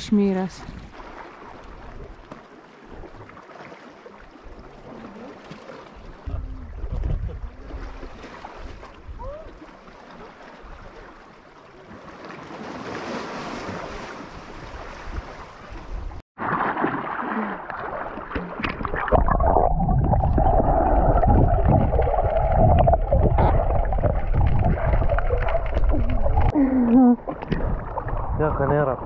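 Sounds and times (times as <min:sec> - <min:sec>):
water lapping against rocks: 0:00.4 - 0:29.0
swimmer splashing: 0:00.9 - 0:06.8, 0:07.4 - 0:19.6, 0:20.2 - 0:28.8
wind buffeting microphone: 0:06.1 - 0:09.6, 0:19.4 - 0:26.6, 0:27.2 - 0:29.0.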